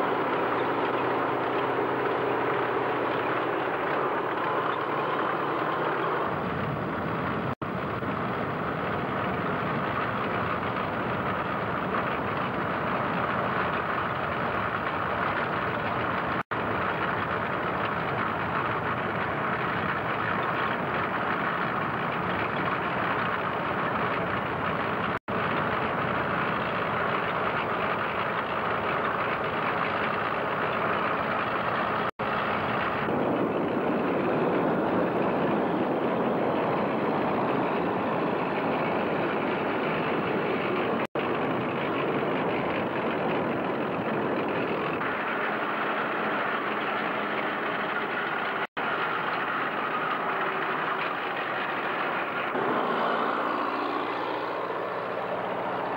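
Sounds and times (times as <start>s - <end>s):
tank engine running: 0.0s - 55.9s
tank tracks moving: 0.0s - 55.9s.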